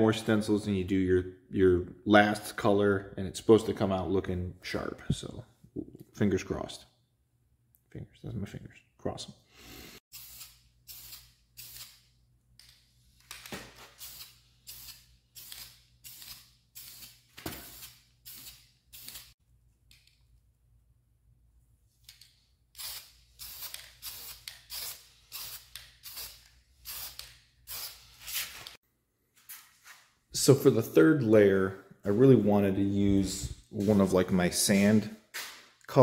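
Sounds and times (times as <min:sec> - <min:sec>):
spray paint can hissing: 0:14.0 - 0:19.3, 0:22.8 - 0:28.7.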